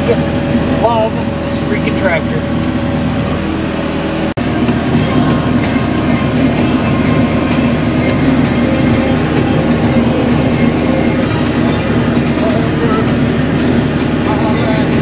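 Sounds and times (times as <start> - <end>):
tractor engine hum: 0.0 - 15.0
baler mechanical clatter: 4.4 - 15.0.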